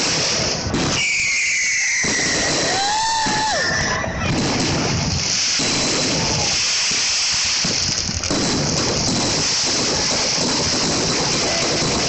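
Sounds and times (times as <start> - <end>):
fireworks bangs and crackling: 0.0 - 12.0
steady hiss: 4.6 - 12.0.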